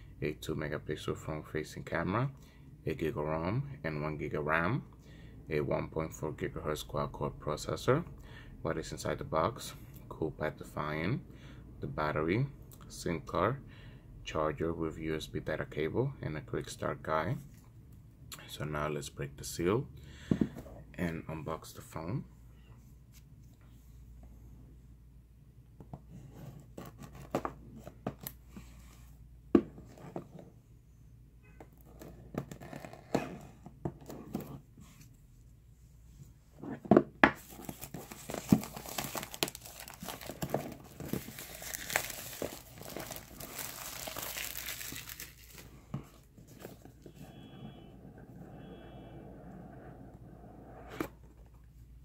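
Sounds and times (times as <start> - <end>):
plastic wrap crinkling and tearing: 37.4 - 45.7.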